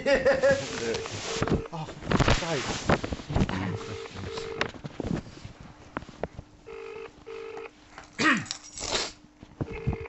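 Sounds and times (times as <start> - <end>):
telephone ringing tone: 0.6 - 1.7, 3.7 - 4.7, 6.7 - 7.7, 9.7 - 10.0.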